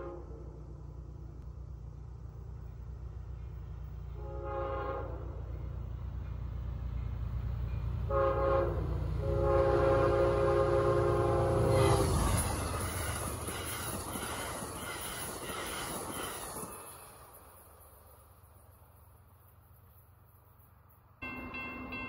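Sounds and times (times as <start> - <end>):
train horn blasts: 0.0 - 0.7, 4.1 - 5.6, 8.0 - 12.4
low train rumble: 0.0 - 22.0
train passing with loud rush: 0.0 - 22.0.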